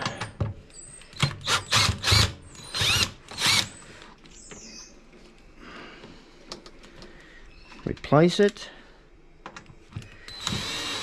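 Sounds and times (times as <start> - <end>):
cordless drill motor whine: 1.4 - 3.8, 10.3 - 11.0.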